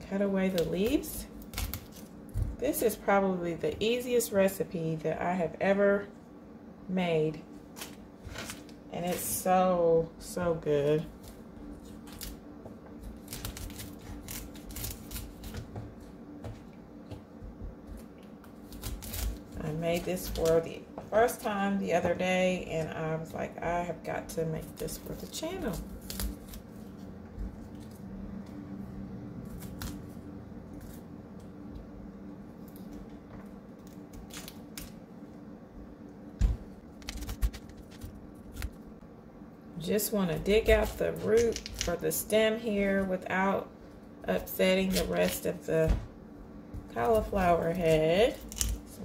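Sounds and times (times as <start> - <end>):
knife crunching through cauliflower: 13.0 - 15.7, 17.9 - 20.5, 25.1 - 28.0
knife cutting cauliflower: 44.7 - 45.5.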